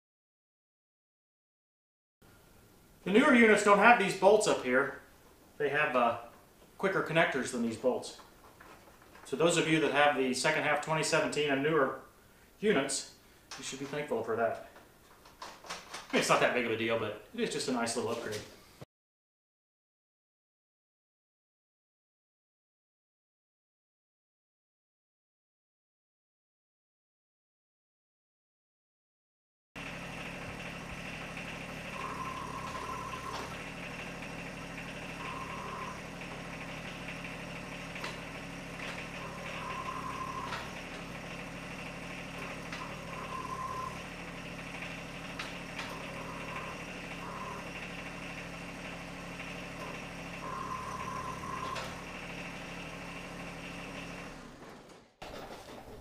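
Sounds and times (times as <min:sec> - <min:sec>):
hydraulic whine: 0:29.8 - 0:55.1
tractor diesel engine running: 0:29.8 - 0:56.0.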